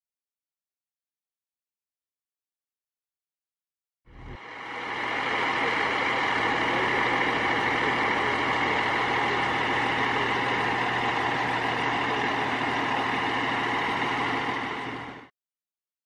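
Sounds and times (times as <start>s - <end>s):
constant hiss: 4.1s - 15.1s
diesel engine idling: 4.1s - 15.2s.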